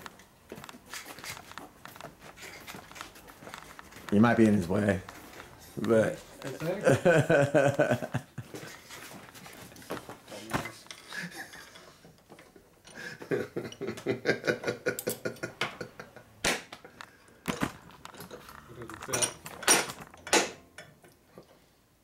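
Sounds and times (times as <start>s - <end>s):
metal parts clinking: 18.1s - 20.6s.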